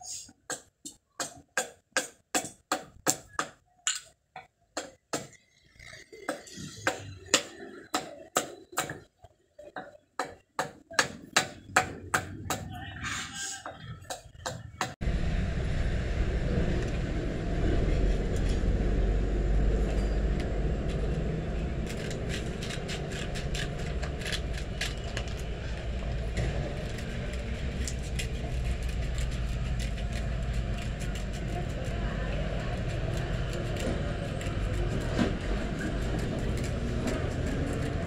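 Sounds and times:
steady low rumble: 15.0s - 38.0s.

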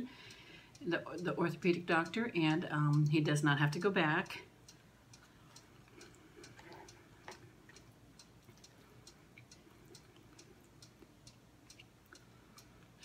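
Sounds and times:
clock ticking: 0.0s - 13.0s.

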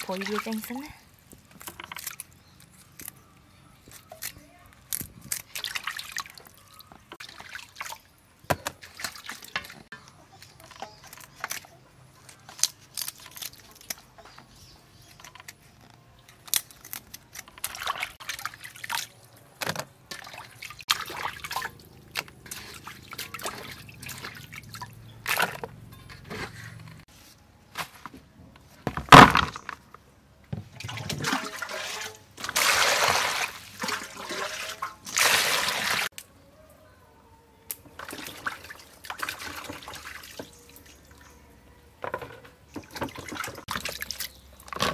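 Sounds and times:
water dripping and splashing: 5.3s - 8.1s, 17.6s - 19.4s, 20.1s - 25.0s, 30.8s - 36.1s, 37.8s - 41.2s, 42.8s - 44.8s.

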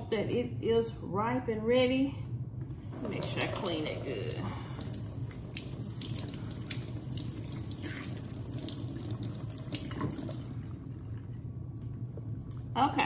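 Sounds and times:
faucet running into sink: 3.0s - 11.4s.

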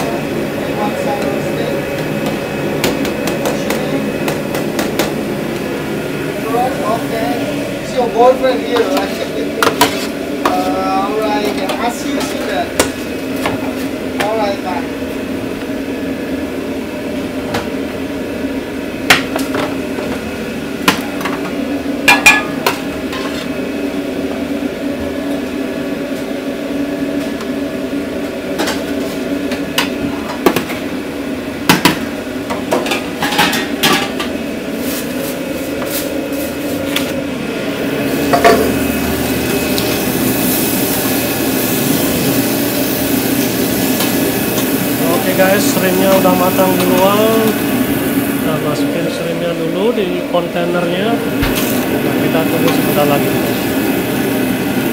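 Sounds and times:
steady mechanical hum: 0.0s - 54.9s
metal cookware clattering: 22.1s - 23.4s.

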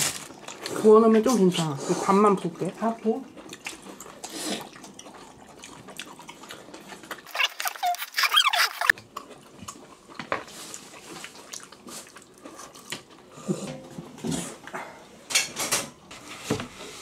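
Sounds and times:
high squeaky wavering sound: 7.3s - 8.9s.

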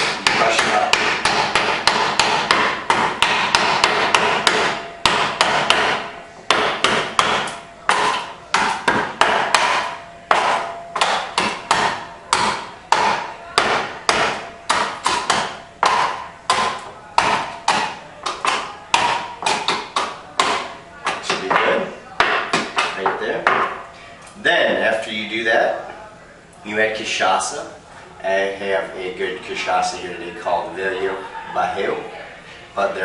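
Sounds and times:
muddler pounding ice: 0.0s - 23.7s.

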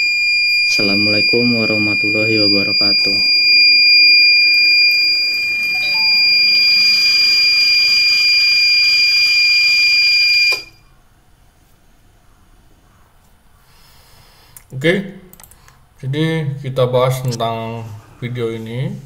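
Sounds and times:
electronic buzzer high tone: 0.0s - 10.8s.

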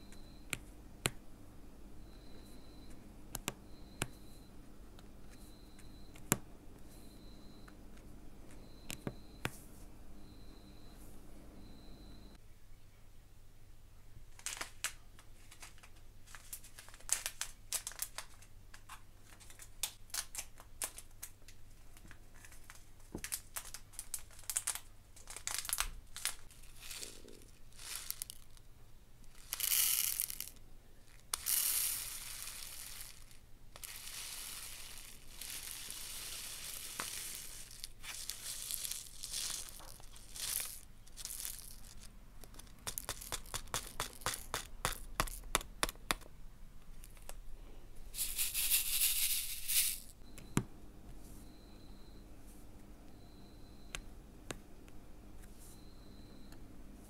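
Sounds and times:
plastic bag crinkling: 15.4s - 18.5s, 22.3s - 28.7s, 29.3s - 45.5s
beads rattling into plastic tray: 23.5s - 28.6s, 29.3s - 45.5s, 48.2s - 50.2s.

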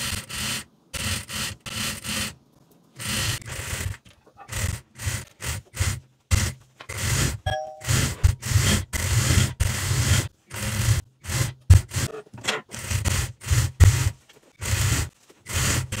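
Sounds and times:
sewing machine stitching: 3.0s - 16.0s.

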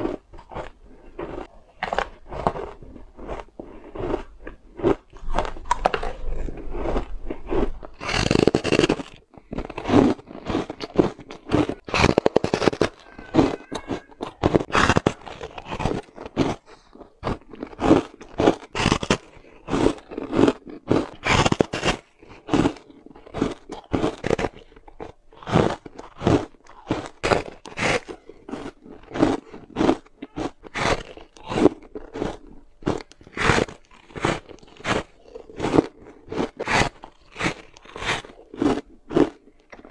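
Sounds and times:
frozen ice crunching: 0.0s - 39.9s.

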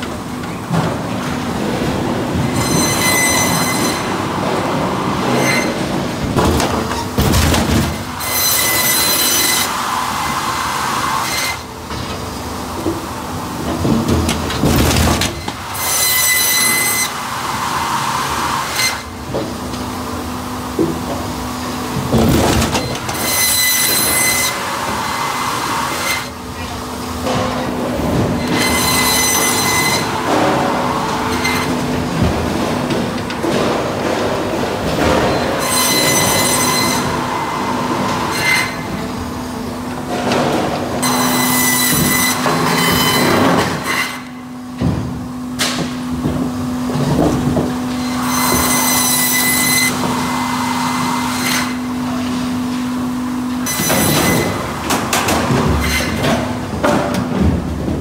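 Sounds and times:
steady machine hum: 0.0s - 58.0s
disc saw squealing whine: 2.6s - 4.1s
disc saw cutting logs: 8.0s - 11.7s, 15.5s - 19.1s, 22.8s - 26.4s, 28.4s - 31.9s, 35.1s - 38.9s, 41.0s - 44.3s.

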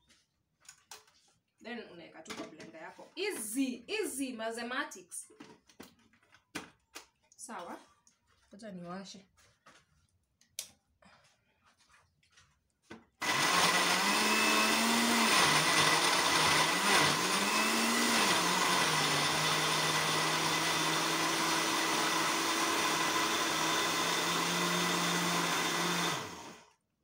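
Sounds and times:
blender motor running: 13.2s - 26.8s.

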